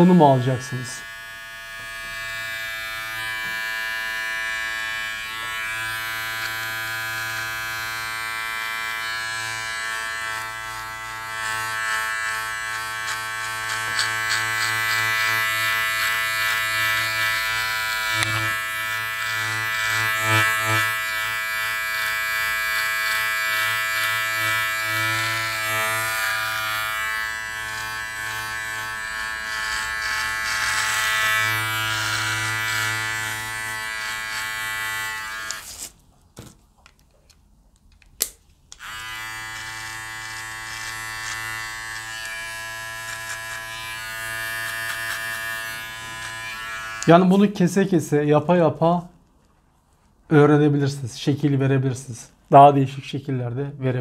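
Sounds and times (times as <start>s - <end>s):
beard trimmer buzzing: 0.0s - 35.9s, 38.2s - 47.4s.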